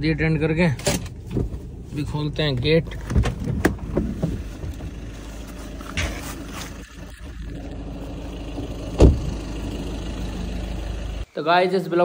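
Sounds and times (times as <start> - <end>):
car engine idling: 0.0 - 11.3.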